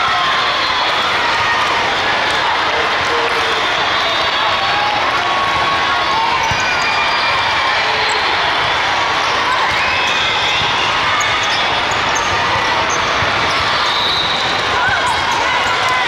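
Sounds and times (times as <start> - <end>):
distant voices echoing in hall: 0.0 - 16.0
balls hit and bouncing on court: 4.7 - 7.0, 7.8 - 16.0.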